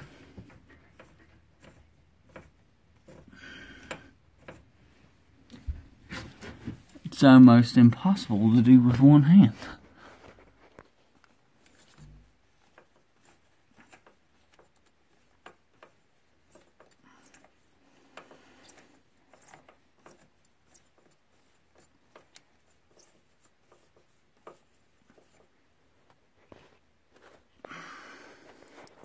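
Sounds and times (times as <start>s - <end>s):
metal socket clicking and rubbing: 18.6s - 25.4s.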